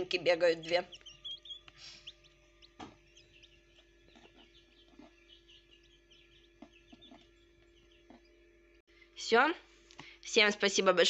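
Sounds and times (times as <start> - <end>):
quail chicks peeping: 0.0 - 8.8
faint steady hum: 0.0 - 11.0.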